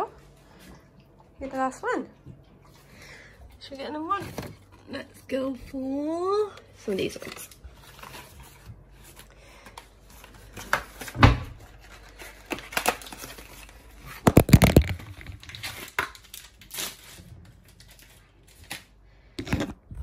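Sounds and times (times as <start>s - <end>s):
plastic wrapper tearing and crinkling: 7.1s - 19.8s.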